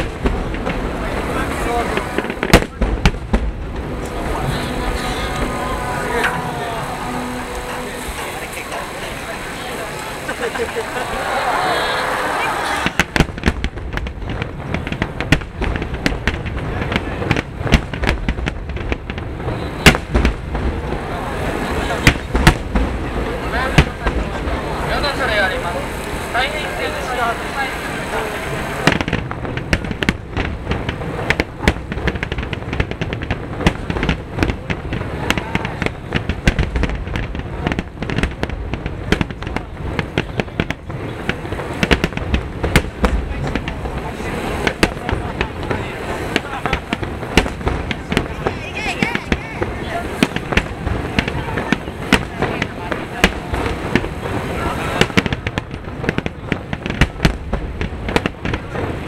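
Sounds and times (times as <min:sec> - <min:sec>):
low rumble: 0:00.0 - 0:19.6
fireworks bursting: 0:00.0 - 0:59.0.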